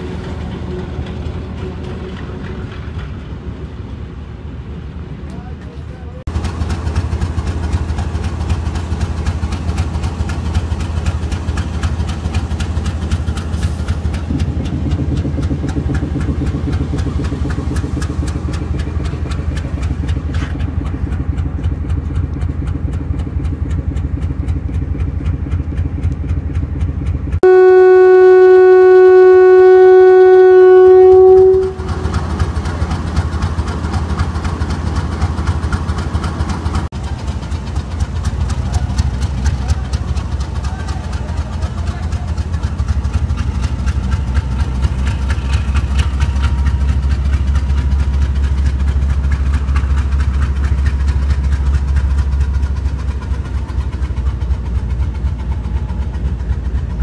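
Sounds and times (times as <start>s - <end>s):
diesel locomotive idling: 0.0s - 57.0s
locomotive horn blast: 27.4s - 32.5s.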